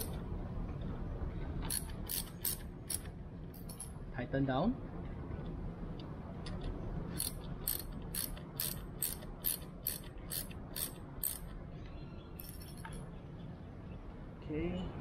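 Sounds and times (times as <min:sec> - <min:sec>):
ratchet wrench clicking: 0:01.7 - 0:03.8, 0:07.1 - 0:11.5.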